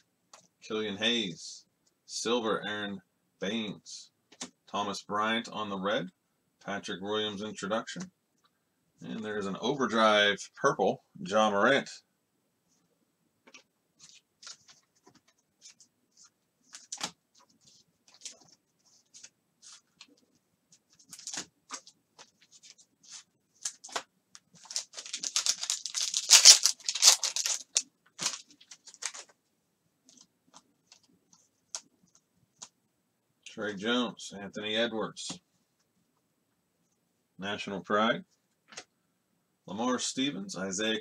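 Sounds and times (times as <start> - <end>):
foil wrapper tearing and crinkling: 24.6 - 29.2.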